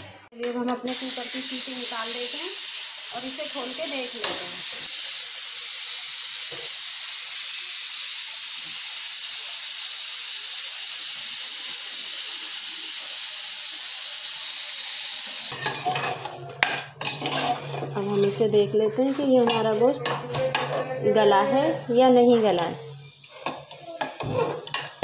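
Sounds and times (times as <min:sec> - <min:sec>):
pressure cooker steam hissing: 0:00.7 - 0:15.8.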